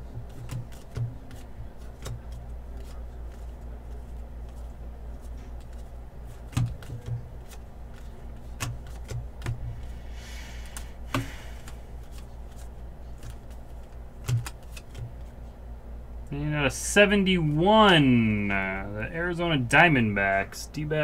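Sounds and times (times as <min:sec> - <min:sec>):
trading cards flicked through: 0:00.0 - 0:15.4
steady low hum: 0:00.0 - 0:21.0.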